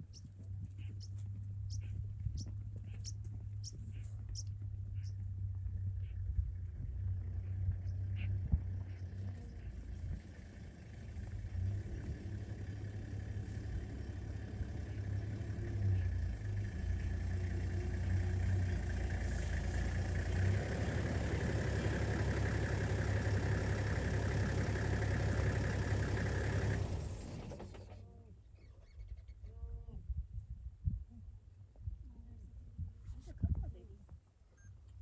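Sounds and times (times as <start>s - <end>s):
vehicle engine humming: 0.0s - 29.0s.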